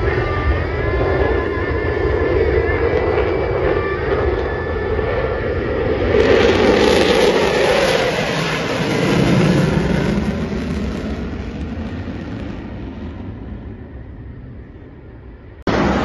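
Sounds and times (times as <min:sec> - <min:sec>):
jet roar passing overhead: 0:00.0 - 0:16.0.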